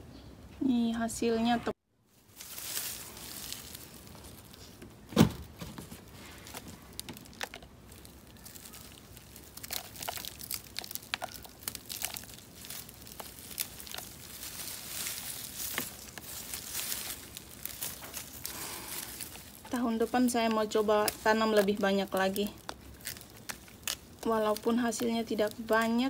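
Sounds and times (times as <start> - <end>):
dry roots and leaves rustling: 2.0 - 26.0
dull thud: 5.0 - 6.0.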